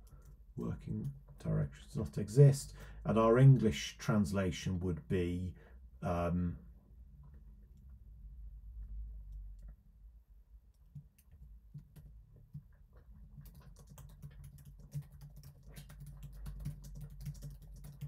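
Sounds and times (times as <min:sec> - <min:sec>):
faint keyboard typing: 0:00.0 - 0:01.9, 0:10.6 - 0:18.0.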